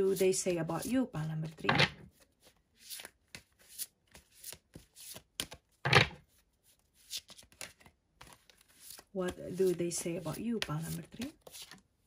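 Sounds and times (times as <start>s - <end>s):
cards being shuffled: 0.8s - 11.9s
card deck thump: 5.8s - 6.2s.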